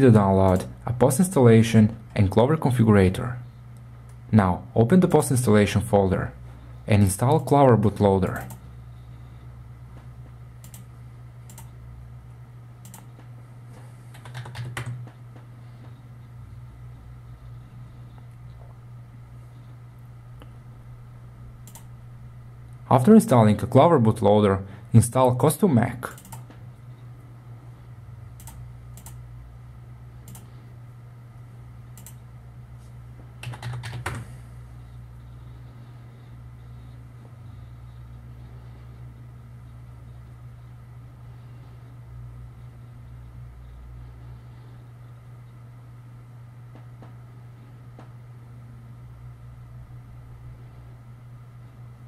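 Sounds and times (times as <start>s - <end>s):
low hum: 0.0s - 14.2s, 14.8s - 33.6s, 34.2s - 52.0s
computer keyboard typing: 12.8s - 13.1s, 14.1s - 15.1s, 26.1s - 26.5s, 33.4s - 34.2s.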